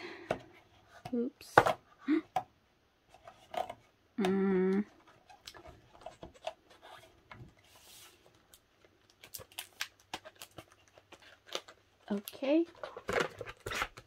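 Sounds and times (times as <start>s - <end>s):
paper and plastic rustling: 4.9s - 14.0s.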